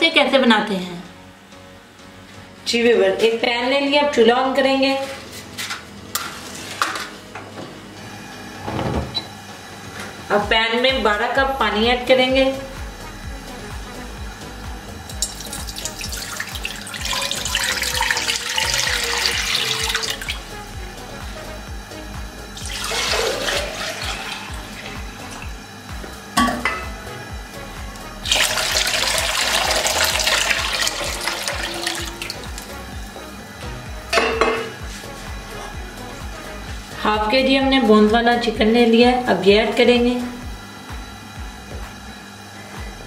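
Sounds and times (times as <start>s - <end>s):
water pouring into a wok: 15.2s - 20.4s, 22.6s - 24.7s, 28.2s - 32.7s.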